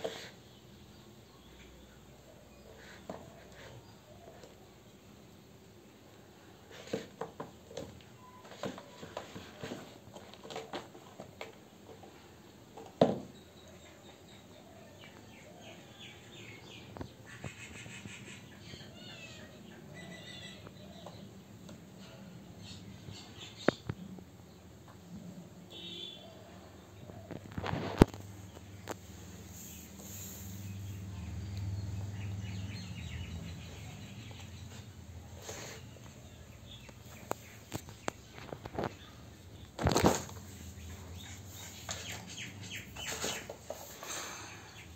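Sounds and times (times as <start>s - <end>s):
faint high chirping: 8.1s - 9.1s, 13.3s - 21.4s
bird chirping: 13.3s - 21.4s, 29.6s - 43.6s.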